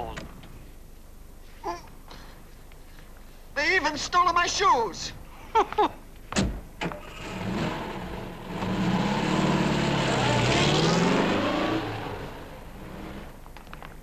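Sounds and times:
car engine revving: 0:07.0 - 0:13.4.

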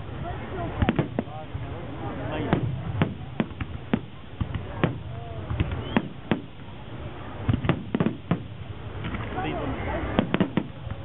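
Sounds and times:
firework shells bursting: 0:02.5 - 0:06.6, 0:07.4 - 0:09.4, 0:10.1 - 0:11.0.

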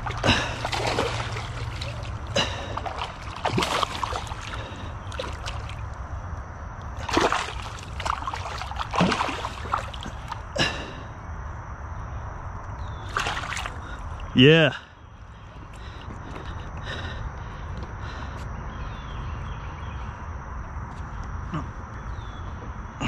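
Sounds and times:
fish splashing in water: 0:00.0 - 0:06.0, 0:07.0 - 0:10.5, 0:13.0 - 0:14.3.

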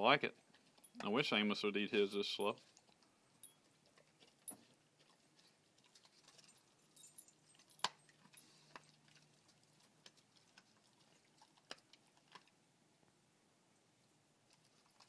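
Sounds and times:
dog chewing raw meat: 0:02.5 - 0:12.6.

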